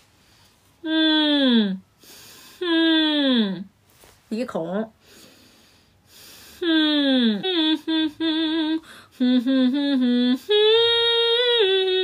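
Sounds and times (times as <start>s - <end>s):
woman humming: 0.8s - 3.7s, 6.6s - 12.0s.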